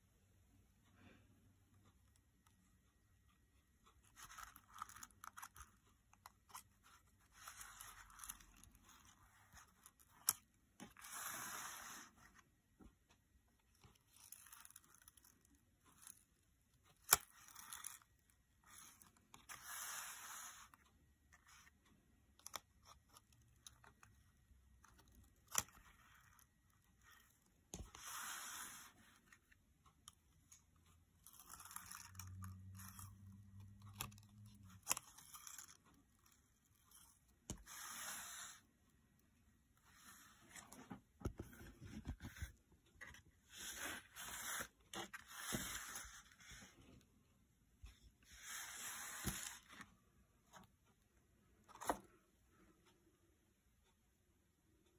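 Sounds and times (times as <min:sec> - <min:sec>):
papery rustles and card scraping: 0:04.0 - 0:12.5, 0:17.0 - 0:20.8, 0:25.0 - 0:29.4, 0:36.7 - 0:38.7, 0:39.8 - 0:47.0, 0:48.3 - 0:49.9.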